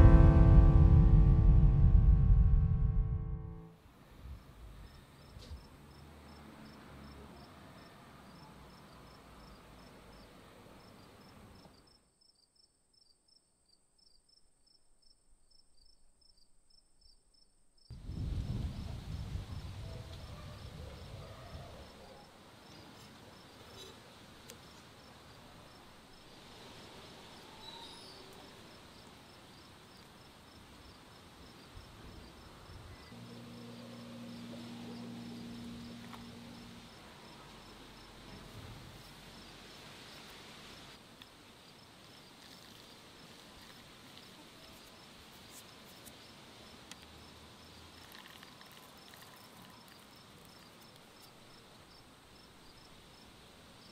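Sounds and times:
low hum: 0.0 - 3.8, 33.1 - 38.6
crickets chirping: 28.8 - 45.1, 46.2 - 53.9.

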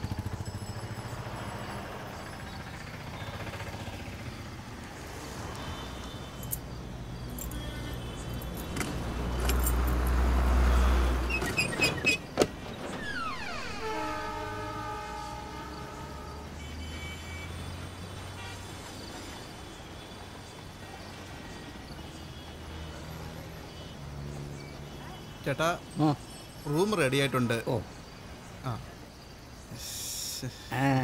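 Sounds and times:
low traffic hum: 0.0 - 31.0
vehicle horn long note: 13.0 - 17.6.

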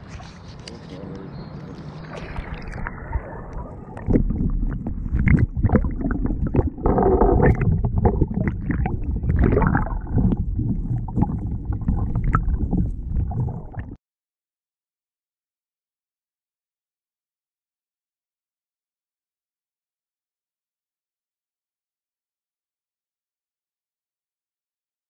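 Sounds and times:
muffled underwater rumbling and sloshing: 0.0 - 14.0
low underwater knocks: 4.0 - 14.0.

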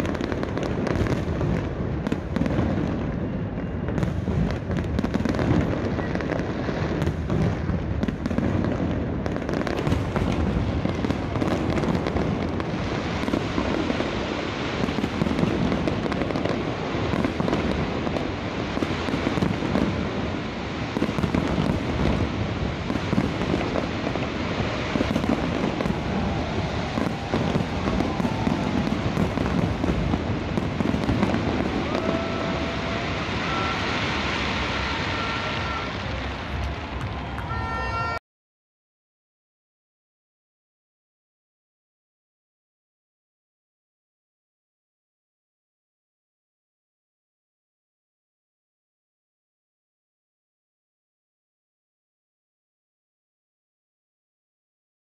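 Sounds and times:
fireworks bangs and crackling: 0.0 - 38.2.

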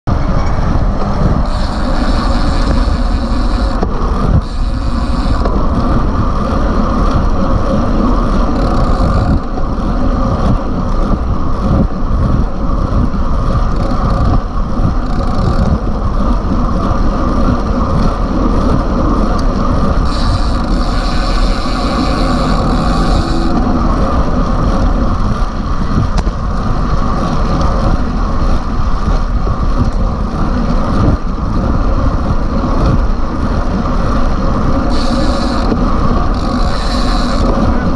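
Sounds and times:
wind buffeting microphone: 0.1 - 37.9.

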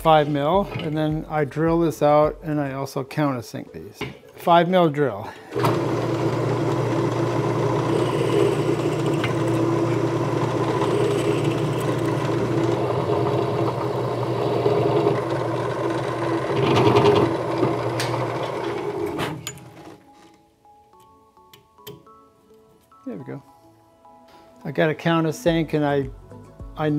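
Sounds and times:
motor winding down: 5.5 - 19.2
drill press motor drilling: 5.5 - 19.9.

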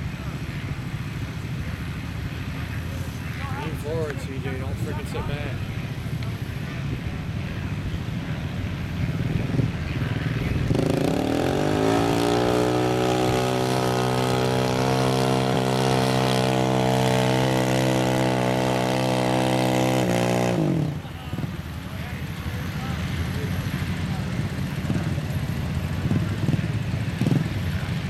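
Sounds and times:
atv engine revving: 0.0 - 28.0.

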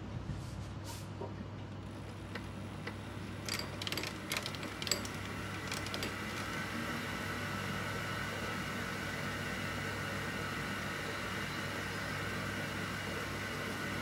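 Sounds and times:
metal lathe running: 2.0 - 10.2.

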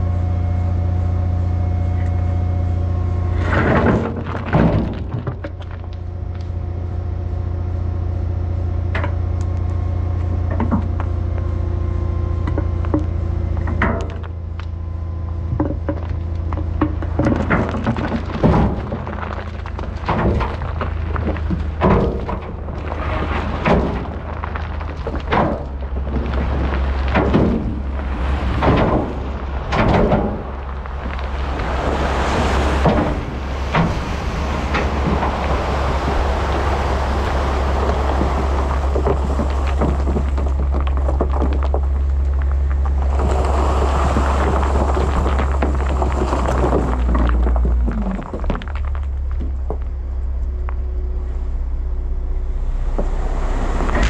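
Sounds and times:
diesel truck engine running: 0.0 - 54.0
heavy knocks and thuds: 3.4 - 5.9, 15.5 - 42.1.

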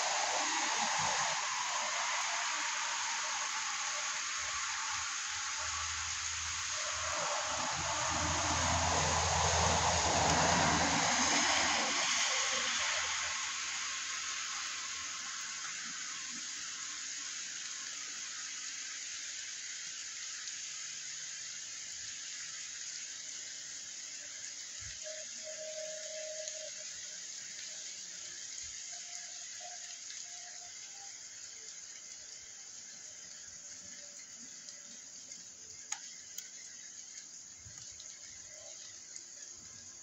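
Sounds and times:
car tyres swishing on wet road: 0.0 - 19.0
steady rain: 0.0 - 40.0.

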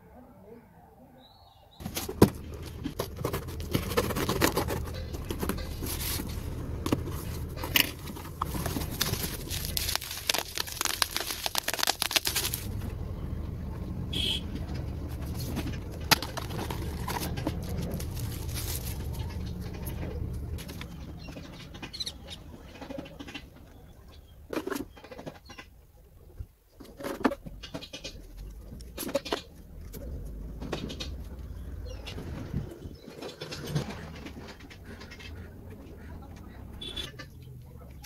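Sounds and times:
cardboard rustling and scraping: 1.8 - 12.7, 15.1 - 20.9.

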